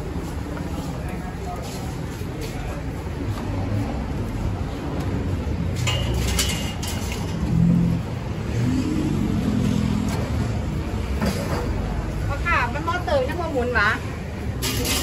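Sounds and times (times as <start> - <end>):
road traffic rumble: 0.0 - 15.0
metal grilling basket clinking: 5.8 - 7.5
vehicle passing: 7.3 - 11.2.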